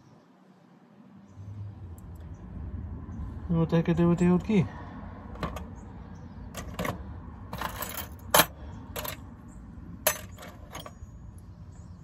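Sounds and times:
keys and metal parts clinking: 0:06.6 - 0:09.2, 0:10.0 - 0:11.1.

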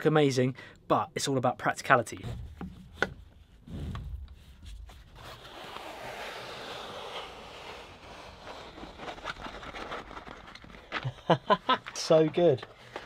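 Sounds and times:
fabric unrolling hiss: 0:03.7 - 0:09.2.

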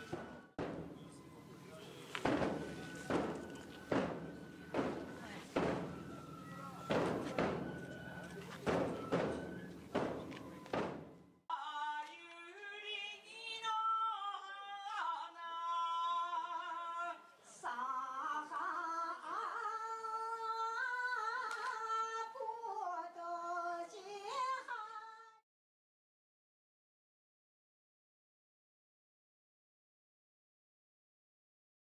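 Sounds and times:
person singing folk song: 0:11.5 - 0:25.3.

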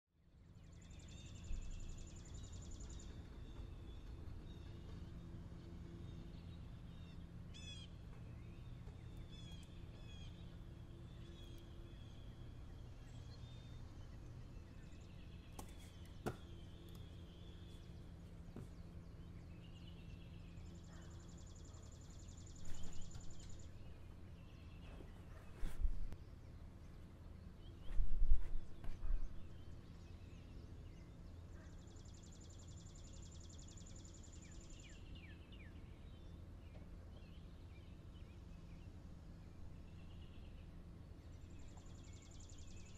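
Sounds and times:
steady low hum: 0:00.2 - 0:42.9
bird chirps: 0:00.5 - 0:25.8.

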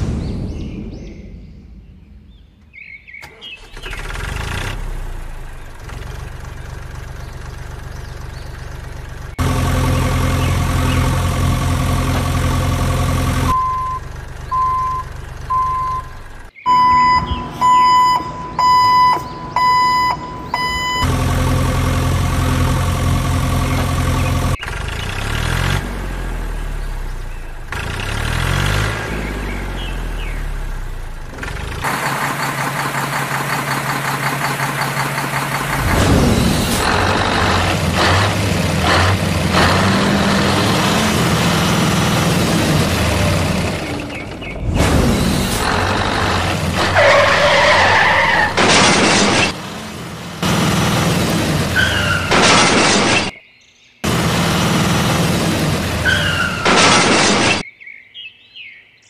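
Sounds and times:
heavy vehicle engine running: 0:03.2 - 0:53.3, 0:54.0 - 0:57.6
reversing alarm beeping: 0:13.5 - 0:21.1.

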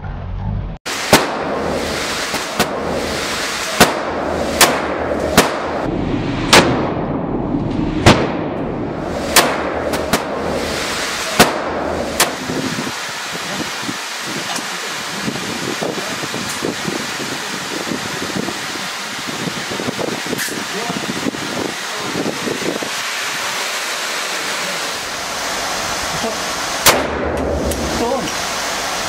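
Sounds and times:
steady hiss: 0:00.9 - 0:05.9, 0:08.8 - 0:29.0
pistol shots echoing: 0:01.1 - 0:05.9, 0:09.3 - 0:10.6, 0:11.2 - 0:12.5, 0:26.8 - 0:27.6.

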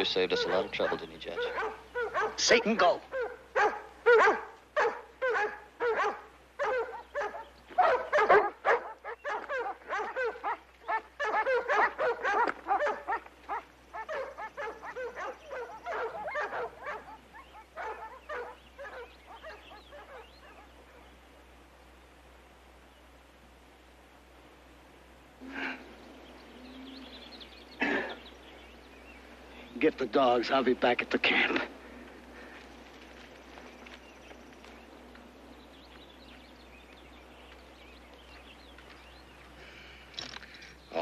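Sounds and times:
dogs barking excitedly: 0:00.0 - 0:21.3.

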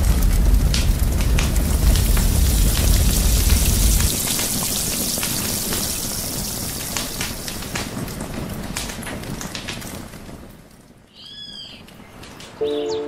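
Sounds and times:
low rumble: 0:00.0 - 0:04.2
hot oil sizzling: 0:00.0 - 0:08.0
wood fire crackling: 0:00.0 - 0:12.6.

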